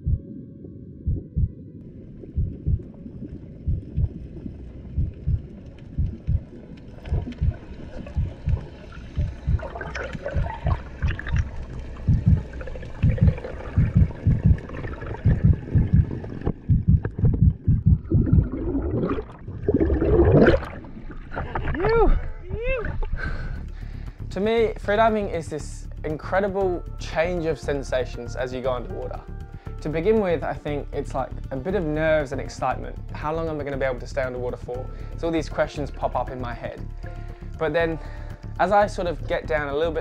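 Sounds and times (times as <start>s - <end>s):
slow heartbeat thumping: 0.0s - 0.4s, 1.0s - 1.6s, 2.2s - 20.7s
underwater bubbling: 0.0s - 24.0s.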